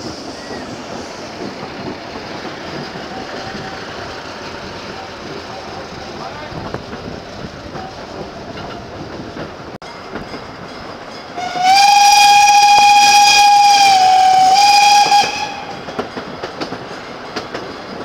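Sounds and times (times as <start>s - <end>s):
train coaches rattling: 0.0s - 18.0s
steam locomotive whistle: 11.4s - 16.0s.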